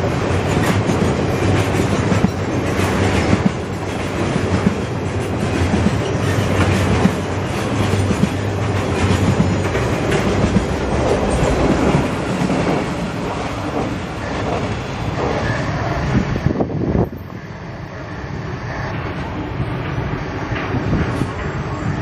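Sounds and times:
wheels clattering over rail joints: 0:00.0 - 0:15.6
freight train rumbling past: 0:00.0 - 0:22.0.

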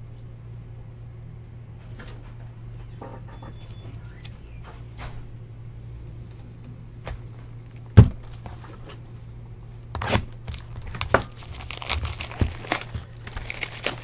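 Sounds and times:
plastic shrink-wrap tearing: 0:10.0 - 0:14.0.

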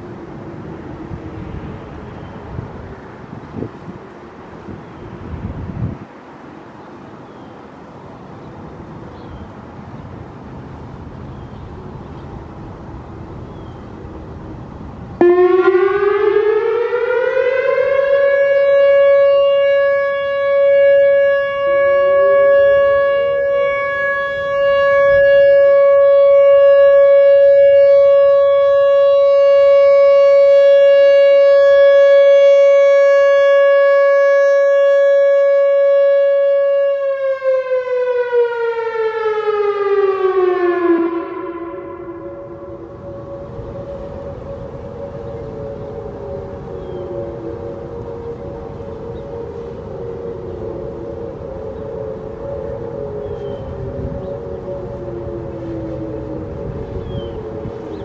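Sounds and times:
electronic warning siren tone: 0:15.2 - 0:58.0.

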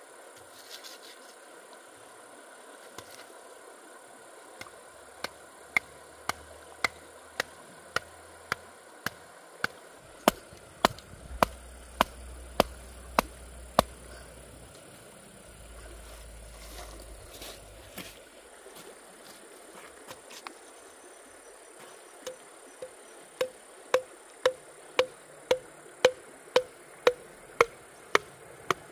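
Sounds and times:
hand tool knocking bamboo: 0:04.6 - 0:14.0, 0:23.4 - 0:28.9.

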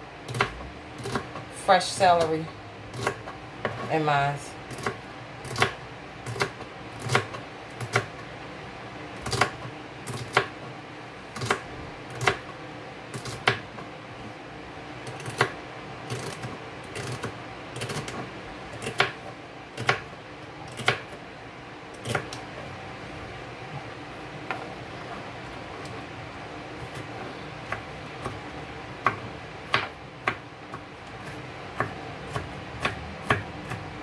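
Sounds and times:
knife chopping on cutting board: 0:00.3 - 0:01.4, 0:02.9 - 0:03.9, 0:04.7 - 0:08.2, 0:09.2 - 0:10.6, 0:11.4 - 0:12.5, 0:13.2 - 0:13.7, 0:15.1 - 0:18.2, 0:18.8 - 0:20.1, 0:20.7 - 0:21.2, 0:22.0 - 0:22.4, 0:29.0 - 0:34.0.

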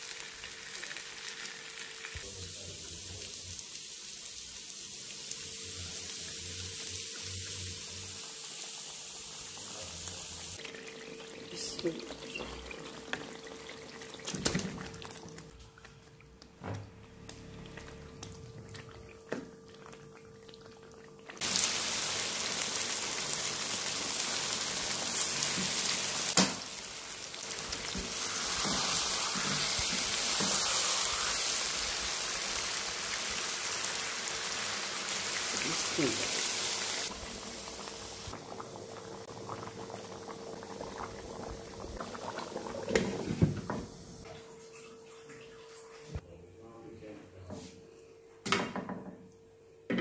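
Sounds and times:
curry sizzling in a pan: 0:00.0 - 0:15.4, 0:21.4 - 0:44.0.

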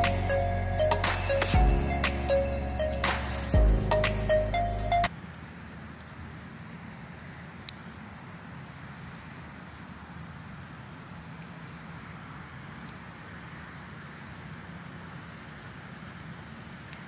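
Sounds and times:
low hum: 0:00.0 - 0:05.1.

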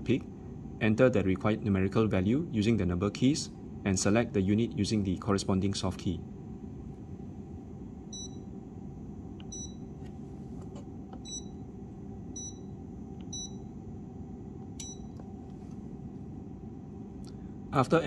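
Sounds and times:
steady low hum: 0:00.0 - 0:18.0
short high key-press beeps: 0:09.5 - 0:09.8, 0:11.2 - 0:11.5, 0:13.3 - 0:13.6, 0:14.8 - 0:15.2.

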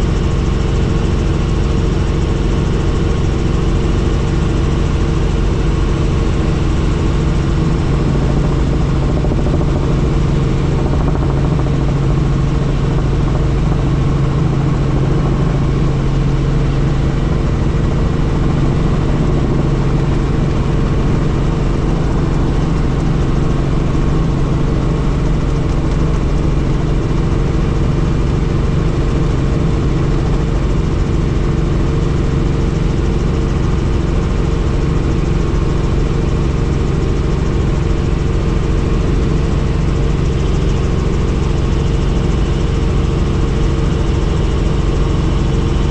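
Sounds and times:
helicopter engine and rotor drone: 0:00.0 - 0:45.9.

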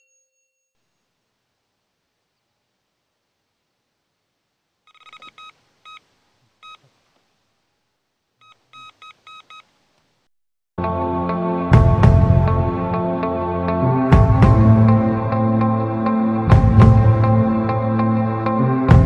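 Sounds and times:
loud music: 0:10.8 - 0:19.0.

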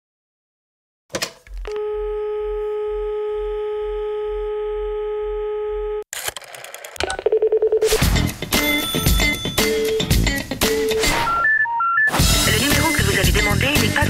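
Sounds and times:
telephone dial tone: 0:01.7 - 0:07.9.

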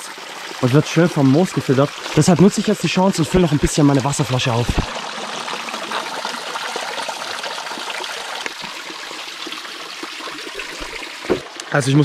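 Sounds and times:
water splashing into plastic bottle: 0:04.6 - 0:05.0.

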